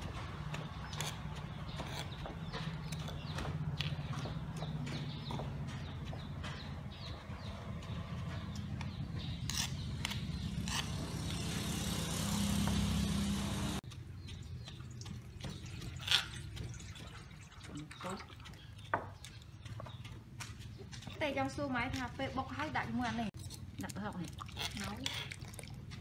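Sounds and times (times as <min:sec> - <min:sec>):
low engine-like hum: 0:00.0 - 0:13.8
spoon scraping pestle: 0:09.2 - 0:11.4.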